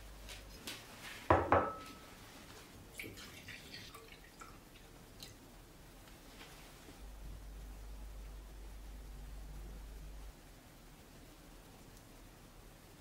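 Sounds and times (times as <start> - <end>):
dishware clinking: 1.4 - 2.1
liquid trickling and dripping: 2.9 - 5.6.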